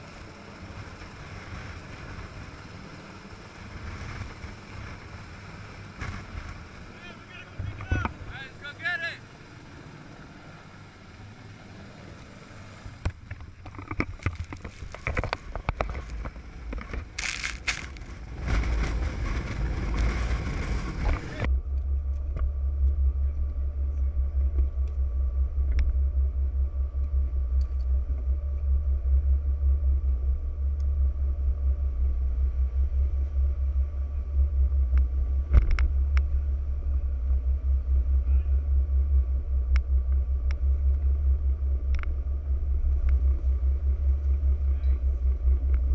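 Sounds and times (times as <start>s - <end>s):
boat engine idling: 0.0s - 45.9s
boat running over sea: 0.0s - 45.9s
wind buffeting microphone: 12.9s - 21.5s.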